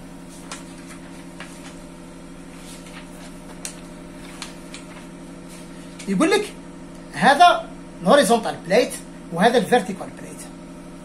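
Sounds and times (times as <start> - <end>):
machine hum: 0.0 - 11.0
paper sheets rustling: 0.2 - 6.2.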